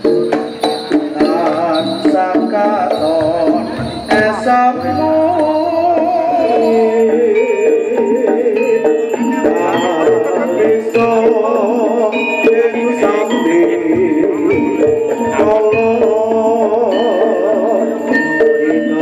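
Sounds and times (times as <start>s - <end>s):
light percussive notes: 0.0s - 19.0s
ornamented folk melody: 0.0s - 19.0s.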